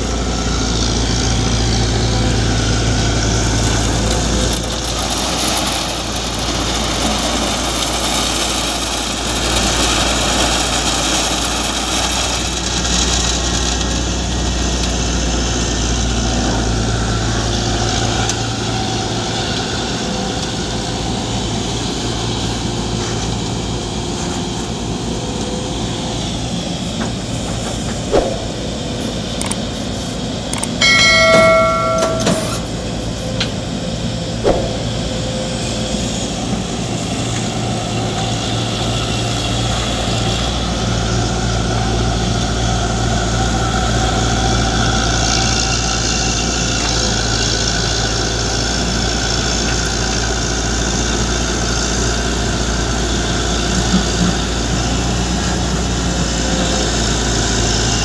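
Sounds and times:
heavy diesel engines running: 0.0 - 58.0
sharp knocks: 28.1 - 28.8, 30.8 - 32.7, 34.4 - 35.2.

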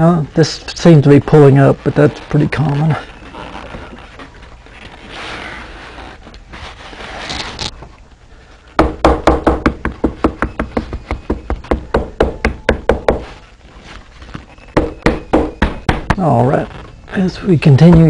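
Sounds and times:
hammer tapping leather: 8.8 - 13.3, 14.8 - 16.2.

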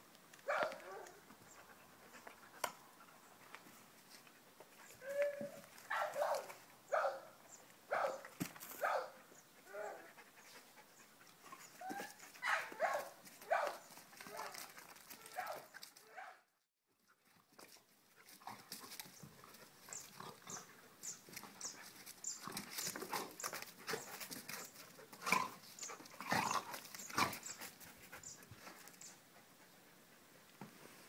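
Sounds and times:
dogs panting: 9.3 - 12.4, 18.0 - 30.6
dogs growling: 26.2 - 27.4.

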